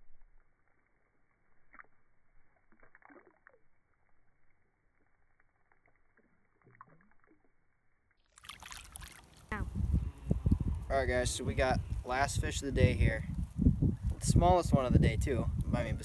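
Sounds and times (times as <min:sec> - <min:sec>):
water sloshing and splashing: 0:08.4 - 0:09.6.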